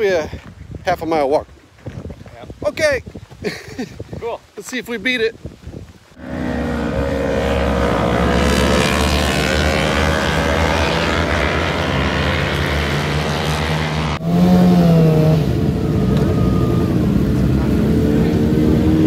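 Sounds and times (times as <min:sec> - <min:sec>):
racing motorcycles passing: 0:06.2 - 0:19.0.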